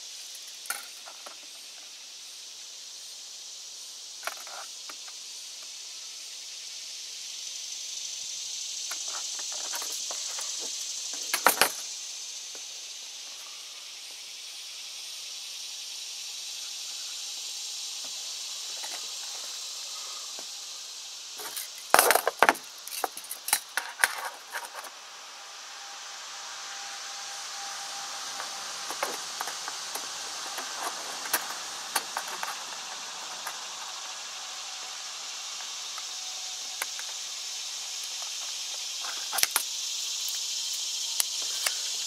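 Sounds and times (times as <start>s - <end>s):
high insect chorus: 0.0s - 42.0s
tape measure clicking and rattling: 28.4s - 34.0s.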